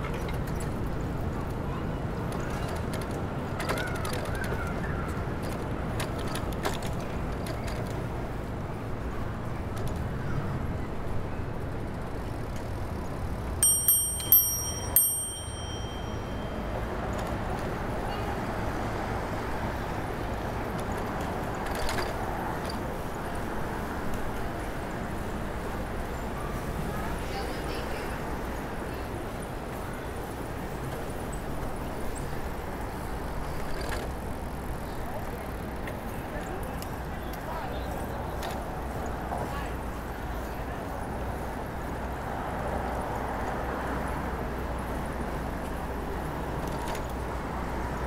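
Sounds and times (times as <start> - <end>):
street and riding rumble: 0.0 - 48.0
bicycle bell dinging: 13.6 - 16.9.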